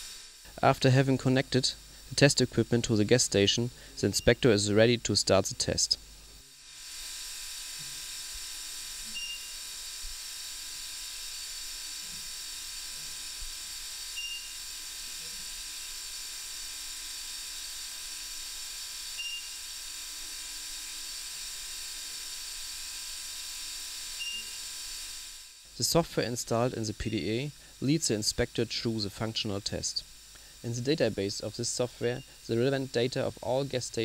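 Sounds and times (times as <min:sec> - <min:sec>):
steady hiss: 0:00.0 - 0:34.0
short high beep: 0:09.2 - 0:09.5.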